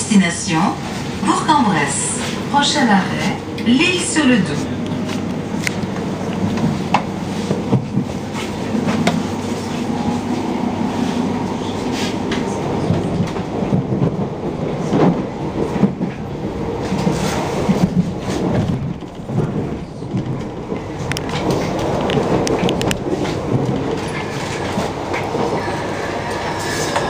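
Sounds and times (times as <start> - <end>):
train wheels rumbling on rails: 0.0 - 27.0
wheels clicking over rail joints: 17.0 - 25.5.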